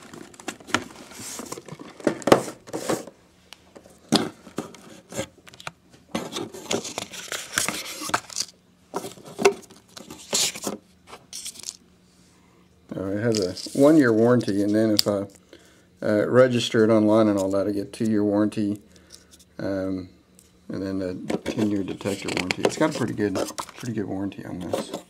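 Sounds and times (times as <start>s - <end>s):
paper and cardboard rustling: 0.0s - 3.1s, 6.1s - 11.8s, 21.4s - 24.0s.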